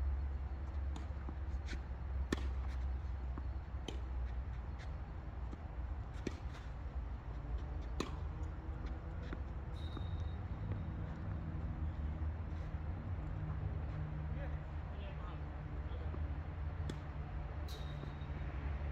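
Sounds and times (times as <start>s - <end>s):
tennis ball struck and bouncing: 0.9s - 6.8s, 7.6s - 11.4s, 16.8s - 18.2s.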